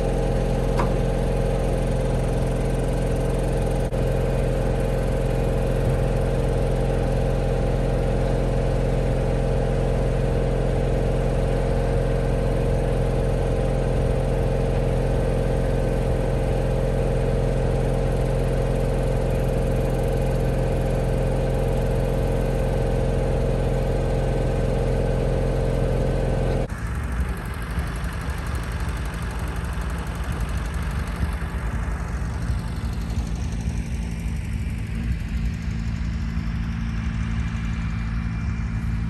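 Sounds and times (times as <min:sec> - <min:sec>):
engine idling: 0:00.0 - 0:39.0
lower engine running: 0:00.0 - 0:39.0.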